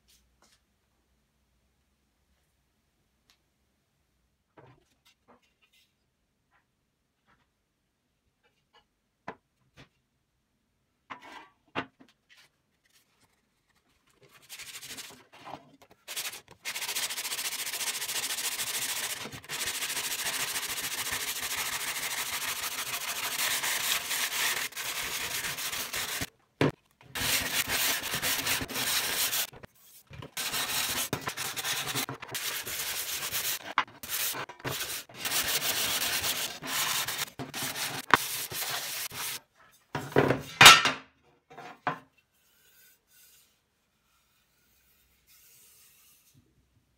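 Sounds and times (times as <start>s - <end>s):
sandpaper scraping metal: 14.3s - 15.3s, 16.0s - 26.3s, 27.2s - 39.4s, 42.4s - 46.3s.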